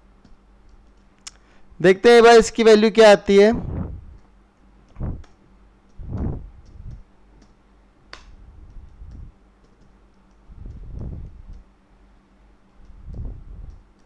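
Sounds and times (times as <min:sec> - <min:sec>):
low puffs on the microphone: 0:03.5 - 0:04.2, 0:04.9 - 0:05.3, 0:06.0 - 0:07.1, 0:08.3 - 0:09.4, 0:10.4 - 0:11.7, 0:12.9 - 0:13.9.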